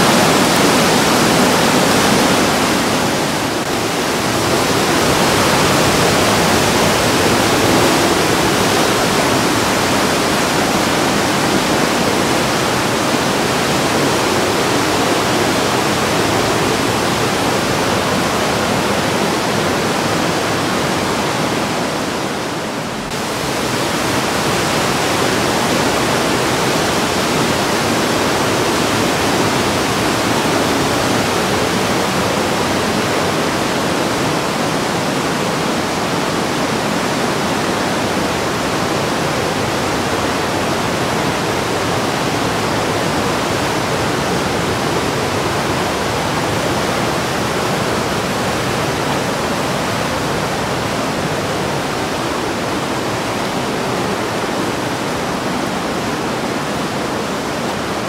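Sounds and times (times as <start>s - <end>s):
river rushing through gorge: 0.0s - 58.0s.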